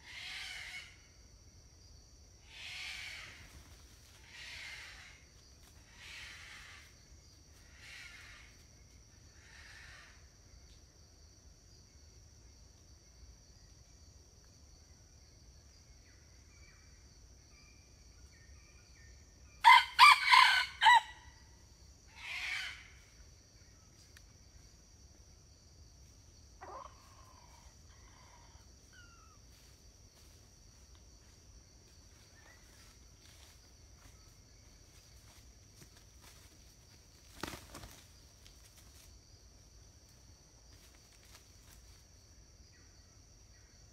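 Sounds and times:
rooster crowing: 0:19.6 - 0:21.4.

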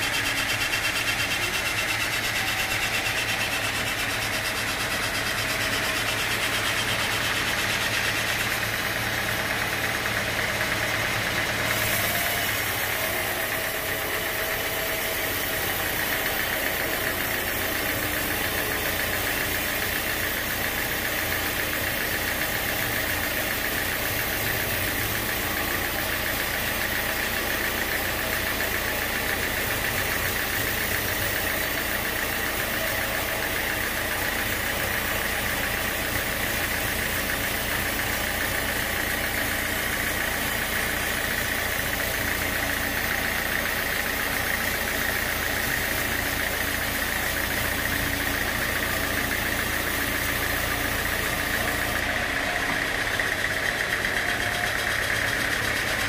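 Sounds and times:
sawmill machine drone: 0:00.0 - 0:56.0.

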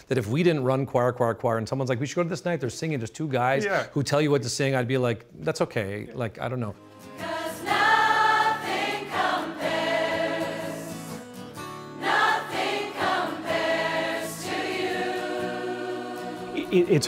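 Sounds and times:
crowd singing together: 0:07.0 - 0:11.2, 0:11.9 - 0:17.0.

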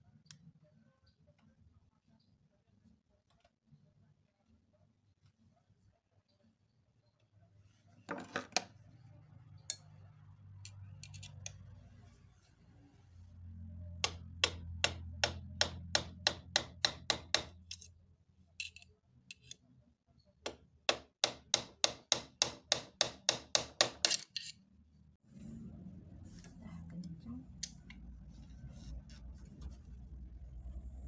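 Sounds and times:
low motor hum: 0:25.2 - 0:31.0.

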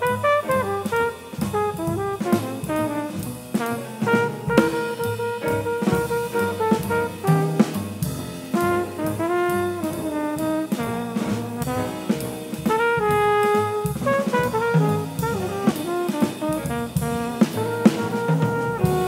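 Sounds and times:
drum kit cymbals: 0:00.0 - 0:19.0
piano: 0:00.0 - 0:19.0
trumpet melody: 0:00.0 - 0:19.0
walking bass line: 0:00.0 - 0:19.0.

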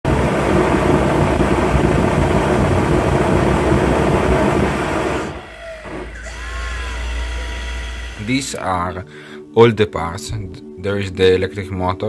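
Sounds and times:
jet engine roaring: 0:00.0 - 0:08.6.

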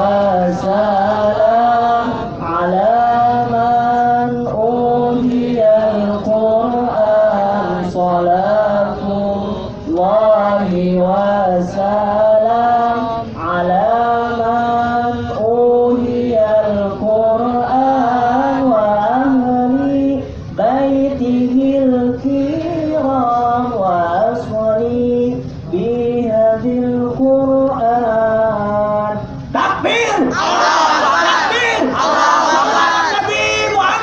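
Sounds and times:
man chanting through microphone: 0:00.0 - 0:30.4.

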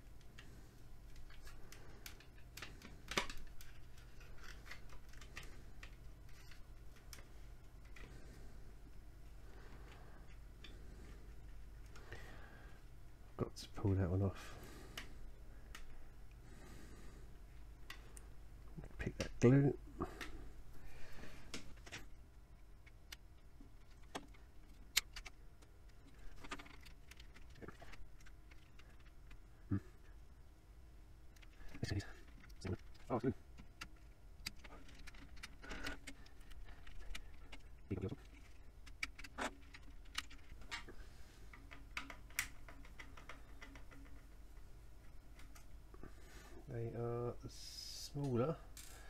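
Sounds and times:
plastic clicks and scrapes: 0:00.2 - 0:08.2, 0:22.8 - 0:29.4, 0:31.3 - 0:45.7.

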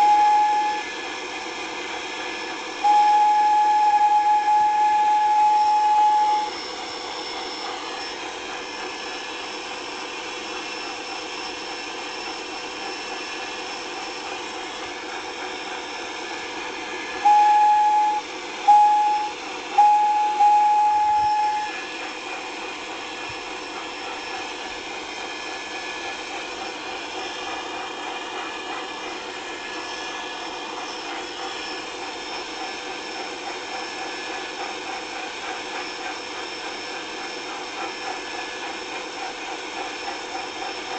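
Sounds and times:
locomotive whistle blasts: 0:00.0 - 0:01.0, 0:02.4 - 0:08.2, 0:17.0 - 0:22.0.

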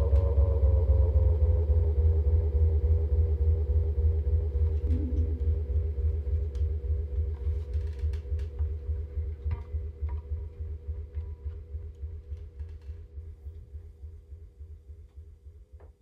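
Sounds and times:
deep low bass tone: 0:00.0 - 0:16.0
sustained guitar notes: 0:04.8 - 0:06.6.

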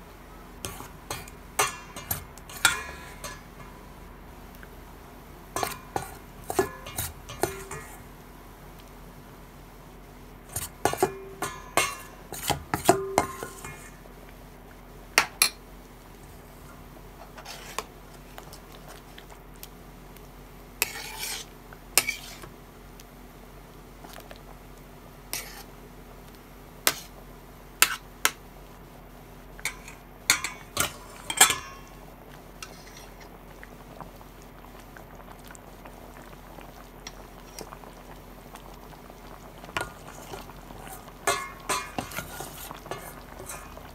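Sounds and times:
metal spoon clinking in pot: 0:01.1 - 0:03.7, 0:10.9 - 0:12.1, 0:29.7 - 0:31.9, 0:41.2 - 0:42.3, 0:42.9 - 0:43.8.

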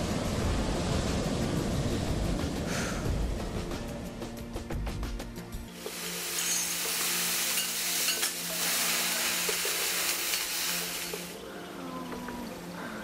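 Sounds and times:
food sizzling on a griddle: 0:05.8 - 0:11.4.

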